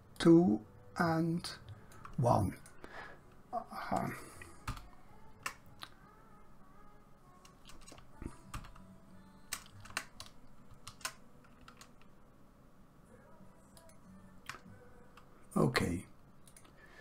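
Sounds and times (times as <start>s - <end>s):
faint keyboard keystrokes: 7.4s - 8.8s.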